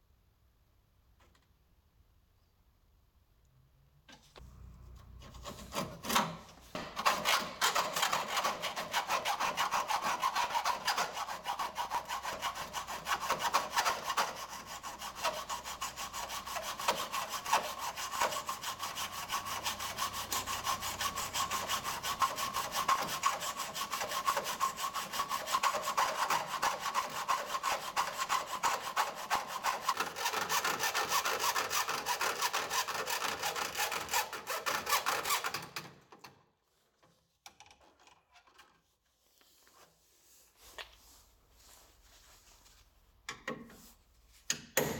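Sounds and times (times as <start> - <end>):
hacksaw cutting through steel: 5.2 - 35.9.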